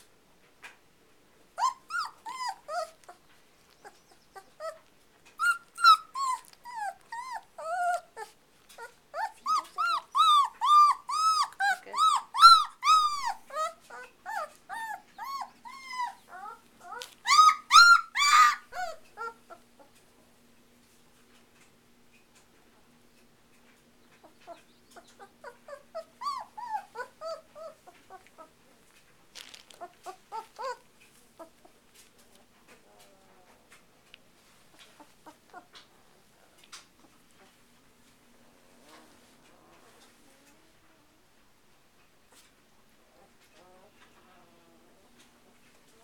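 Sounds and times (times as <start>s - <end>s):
puppy whining: 1.4s - 20.2s, 24.0s - 37.7s, 42.3s - 46.0s.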